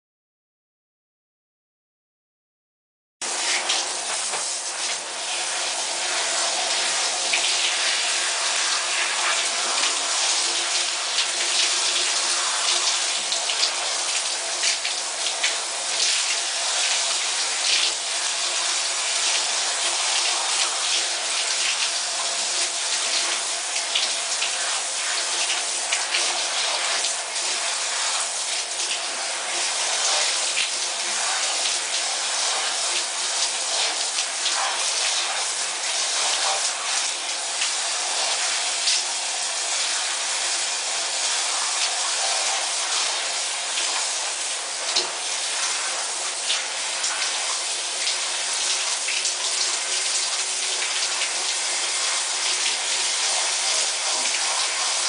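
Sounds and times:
shower water spray hissing: 3.2s - 55.0s.

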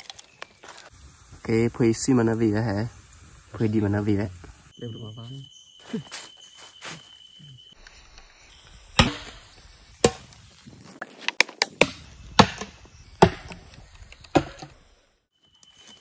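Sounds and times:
axe chopping wood: 9.0s - 9.4s, 10.0s - 10.3s, 11.2s - 13.6s, 14.3s - 14.7s.

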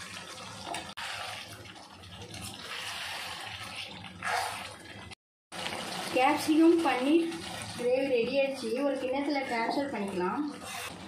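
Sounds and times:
gravy sizzling and bubbling in a pan: 0.0s - 11.0s
metal spatula stirring: 0.7s - 4.9s, 8.7s - 11.0s.

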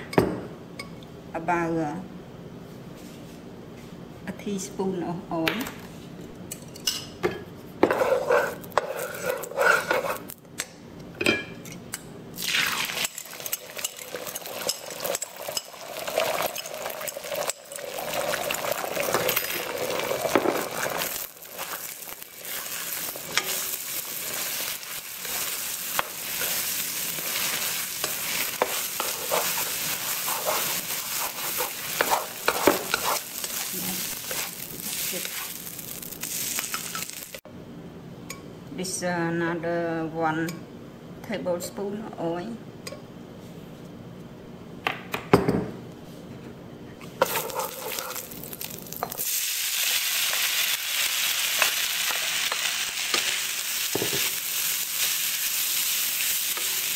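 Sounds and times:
spatula scraping and stirring: 7.8s - 10.3s, 19.0s - 37.3s, 47.2s - 48.4s
egg sizzling in hot oil: 12.4s - 37.4s, 47.2s - 56.9s.

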